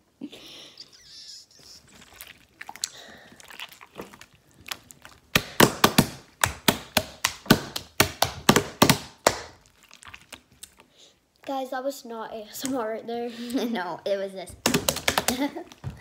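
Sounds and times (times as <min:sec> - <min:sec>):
slime squishing crackles: 0:01.8 - 0:11.6.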